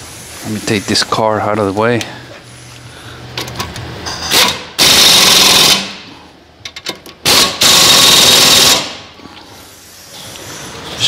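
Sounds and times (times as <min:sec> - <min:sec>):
pneumatic impact wrench hammering: 0:03.4 - 0:06.1, 0:06.7 - 0:09.1.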